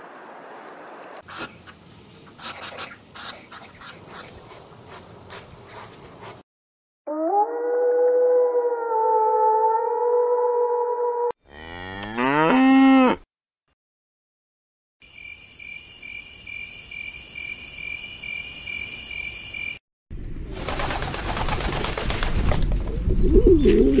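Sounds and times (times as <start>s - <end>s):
cow mooing: 11.4s - 13.2s
pigeon cooing: 23.1s - 24.0s.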